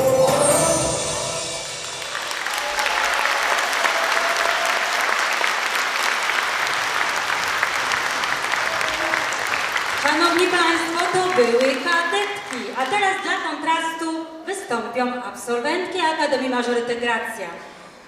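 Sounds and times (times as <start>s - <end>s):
stage music: 0.0s - 14.8s
audience applauding: 1.7s - 13.4s.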